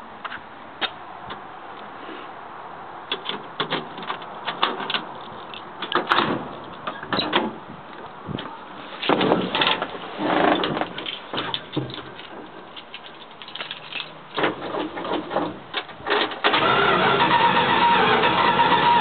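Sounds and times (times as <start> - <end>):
heavy bumps and rustling: 5.9 - 16.4
small clicks and knocks: 10.5 - 16.4.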